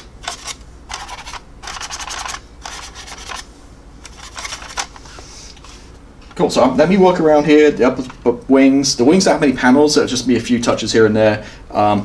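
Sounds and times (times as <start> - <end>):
rubbing strokes on plastic: 1.9 - 3.4.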